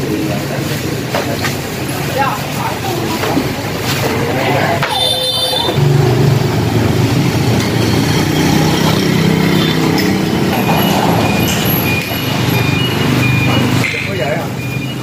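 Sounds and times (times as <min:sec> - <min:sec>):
vehicle engine running: 0:05.8 - 0:13.8.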